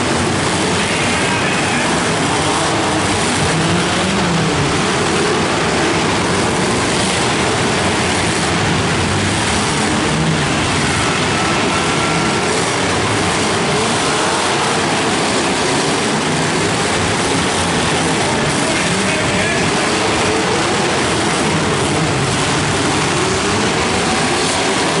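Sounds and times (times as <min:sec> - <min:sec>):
many car engines revving: 0:00.0 - 0:25.0.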